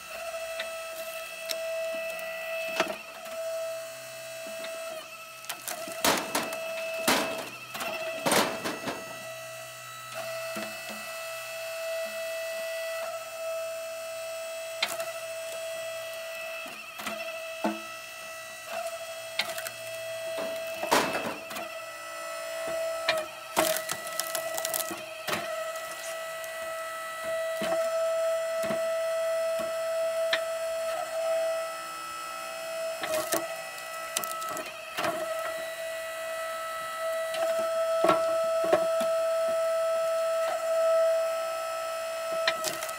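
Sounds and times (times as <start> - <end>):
log splitter motor whine: 0.0 - 42.9
wood cracking apart: 19.4 - 21.6, 23.5 - 26.6, 33.1 - 35.4, 42.5 - 42.9.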